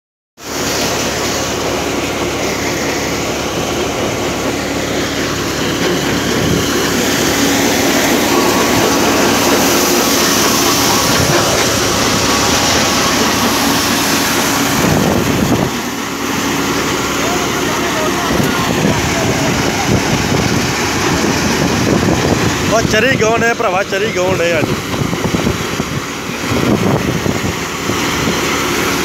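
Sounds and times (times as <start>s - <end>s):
thresher running: 0.4s - 29.0s
low hum: 0.5s - 22.5s.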